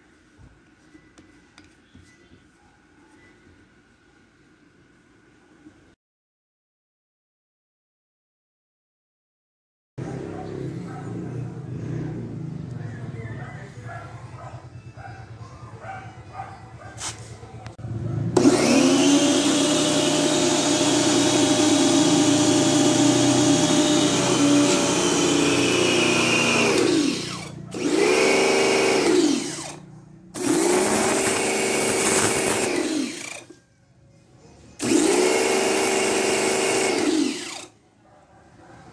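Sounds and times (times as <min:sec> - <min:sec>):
pressure washer motor and pump: 0:18.4 - 0:33.6, 0:34.8 - 0:37.8.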